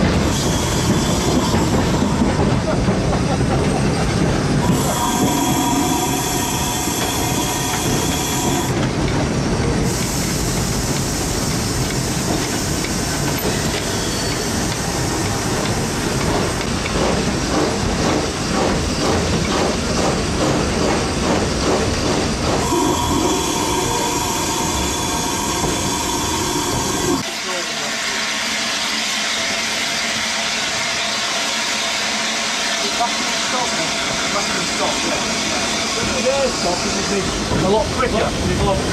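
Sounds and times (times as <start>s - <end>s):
regular locomotive beat: 0.0s - 38.9s
steam locomotive running noise: 0.0s - 38.9s
high ringing tone: 4.9s - 8.7s, 22.6s - 27.2s
steam hiss: 9.8s - 15.3s.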